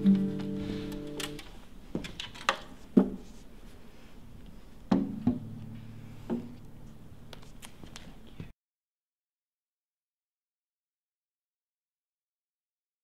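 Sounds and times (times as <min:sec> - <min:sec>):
acoustic guitar chord: 0:00.0 - 0:01.4.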